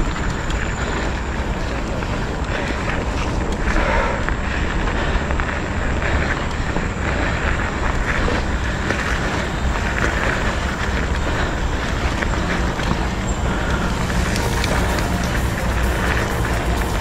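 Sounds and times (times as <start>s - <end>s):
bike tyres rolling on gravel: 0.0s - 17.0s
wind on microphone: 0.0s - 17.0s.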